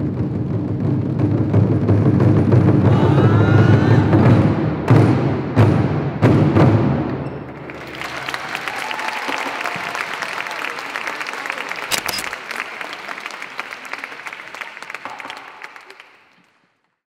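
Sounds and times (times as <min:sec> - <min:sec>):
audience applauding: 0:07.4 - 0:17.0.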